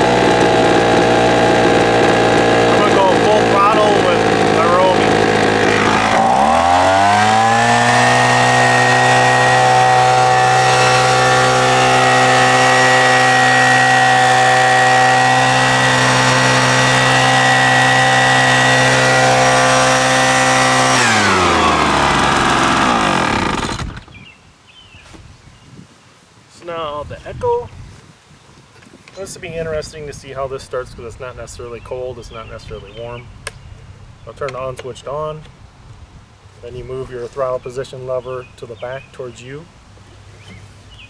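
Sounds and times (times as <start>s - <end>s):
leaf blower engine revving: 0.0s - 24.3s.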